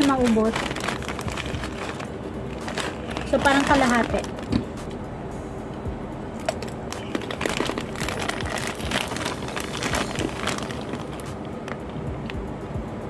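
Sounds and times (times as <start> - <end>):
plastic snack bag crinkling: 0.0 - 4.6, 6.5 - 11.8.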